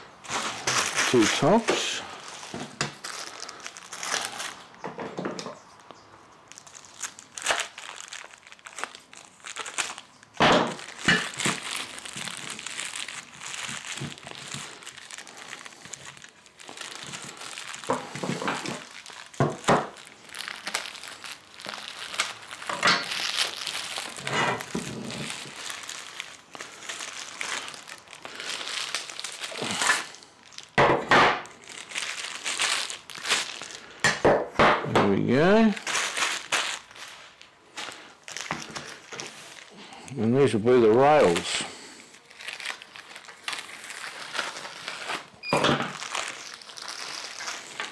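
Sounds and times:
plastic bags crinkling: 0.0 - 34.3, 35.2 - 47.9
scissors cutting plastic: 7.4 - 8.0.

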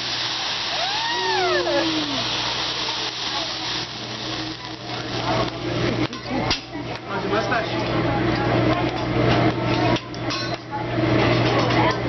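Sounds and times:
flame whooshing: 0.0 - 6.1
people exclaiming: 0.6 - 3.1.

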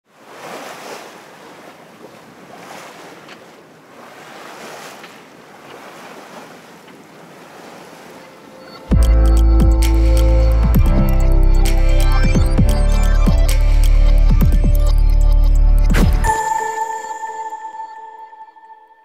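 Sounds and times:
sea surf washing: 0.1 - 8.9.

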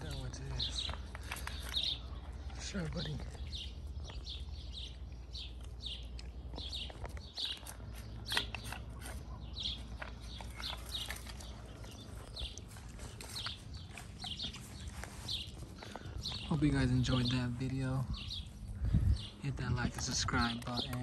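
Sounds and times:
dogs eating from steel bowl: 0.0 - 12.2
bird chirping: 0.0 - 21.0.

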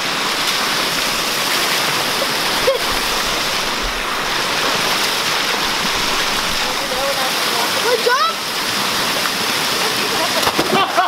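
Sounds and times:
water rushing over weir: 0.0 - 11.0.

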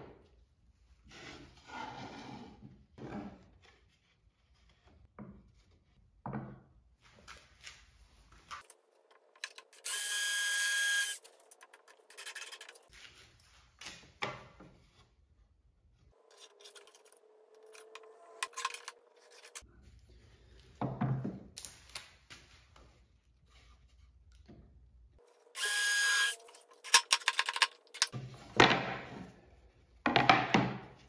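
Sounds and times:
cordless drill running: 9.8 - 11.2, 25.6 - 26.4.

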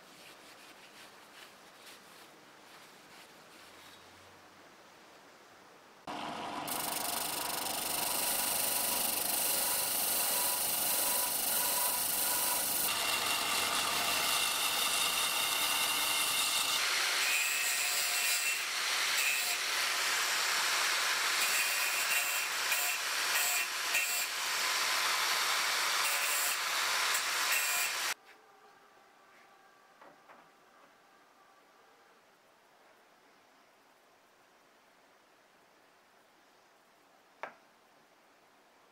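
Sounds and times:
disc sander grinding steel: 6.1 - 17.3
angle grinder grinding metal: 6.2 - 17.3, 18.4 - 28.2.

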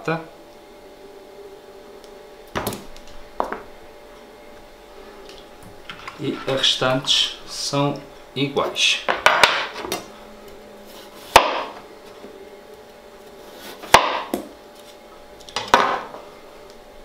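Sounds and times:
knife chopping potato on cutting board: 11.3 - 11.8, 13.8 - 14.5.

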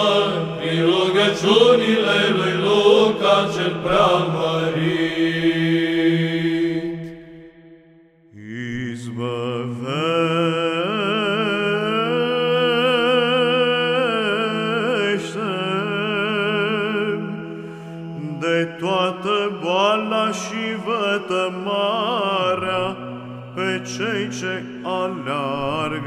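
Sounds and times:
low held vocal drone: 0.0 - 7.3
chanted ornamented sung melody: 0.0 - 26.0.

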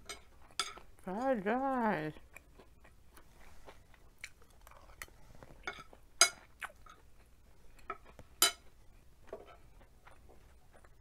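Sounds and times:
cutlery clinking on plate: 0.0 - 0.8, 7.9 - 8.7.

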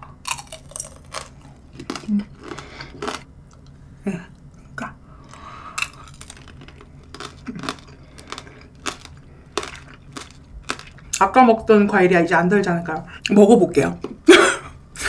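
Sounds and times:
candy shell crunching: 0.2 - 3.2, 5.2 - 11.2
chewing: 0.3 - 3.7, 5.3 - 11.2.

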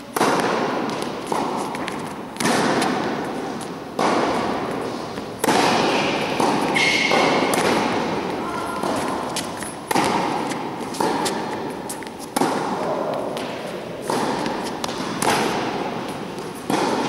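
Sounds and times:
rackets hitting tennis ball: 0.0 - 17.0
tennis ball bouncing on court: 0.1 - 17.0
shoe squeak: 6.7 - 7.2.

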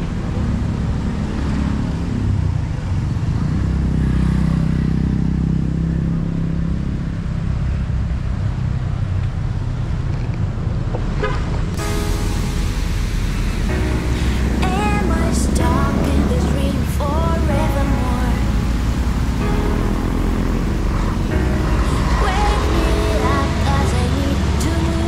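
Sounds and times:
motor vehicle passing: 0.0 - 25.0
road traffic rumble: 0.0 - 25.0
music: 11.8 - 25.0.

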